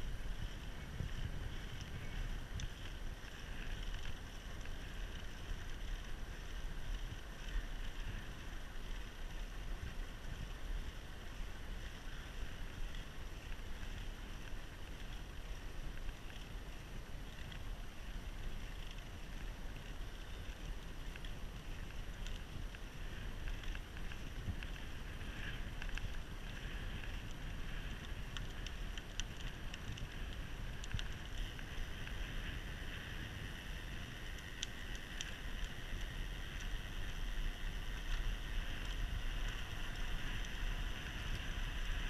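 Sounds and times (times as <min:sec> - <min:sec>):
wind rushing over microphone: 0:00.0 - 0:03.6
faint ticks: 0:00.0 - 0:42.0.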